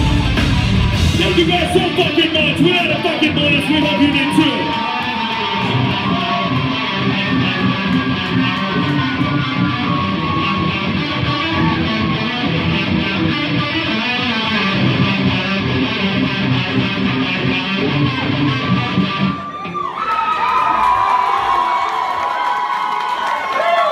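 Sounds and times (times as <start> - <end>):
bass guitar: 0.0 - 4.7, 5.4 - 19.6
electric guitars: 0.0 - 19.9
drums: 0.0 - 20.1.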